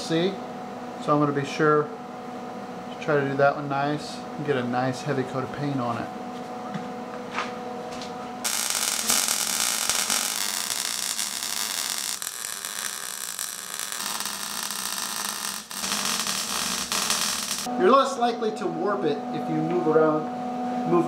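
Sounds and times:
welder arc crackling: 8.4s - 17.7s.

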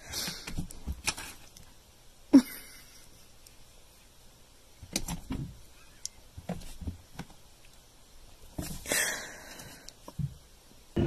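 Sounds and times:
cat paws knocking and scuffling: 4.8s - 5.7s, 6.3s - 7.4s, 8.4s - 8.9s.

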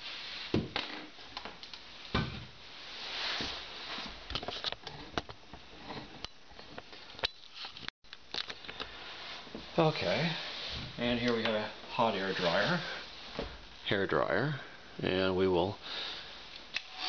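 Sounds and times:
rustling and scraping: 2.7s - 7.9s, 8.7s - 13.6s.

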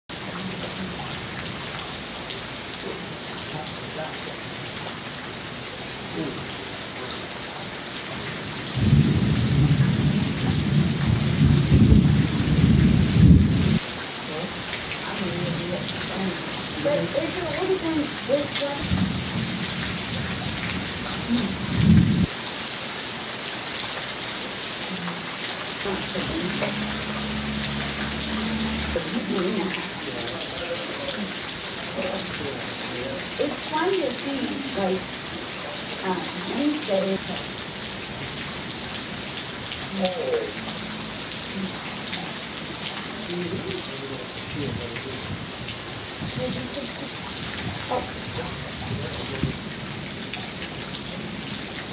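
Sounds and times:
steady rain hiss: 0.1s - 51.9s
thunder rumble and clap: 8.8s - 13.8s, 18.8s - 22.3s.

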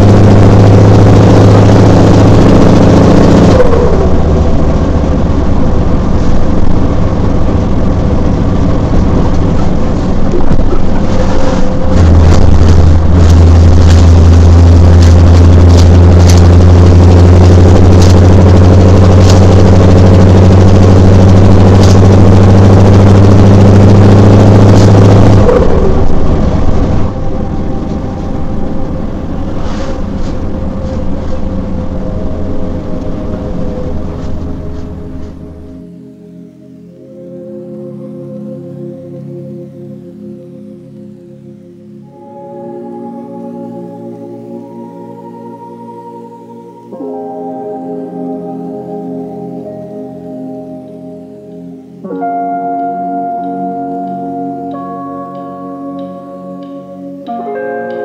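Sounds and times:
diesel truck engine running: 0.0s - 36.0s.

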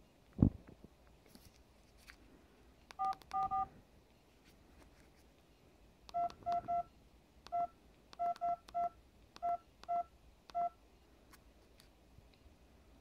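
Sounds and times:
phone keypad beeps: 3.0s - 3.7s, 6.1s - 6.9s, 7.5s - 10.8s.

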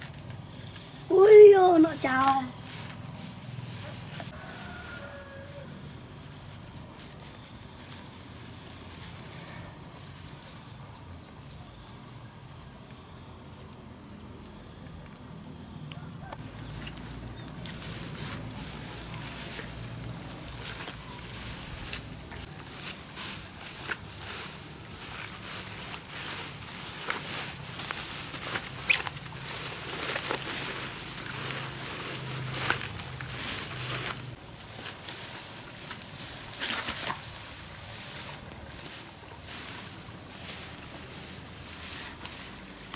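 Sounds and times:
weeds rustling and crackling: 0.0s - 15.2s, 15.9s - 42.9s
insect pulsing: 0.0s - 42.9s
insects trilling: 0.0s - 42.9s.

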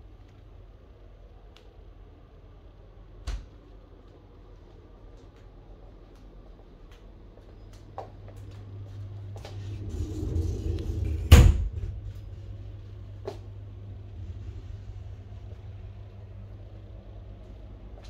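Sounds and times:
steady low hum: 0.0s - 18.0s
wardrobe door rumbling open: 9.5s - 12.3s.

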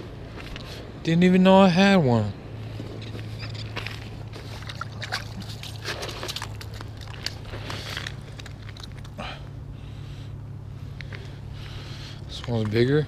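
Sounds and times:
steady low hum: 0.0s - 13.0s
scraping and clicking on ice: 3.4s - 9.2s
fish splashing: 3.7s - 9.2s.

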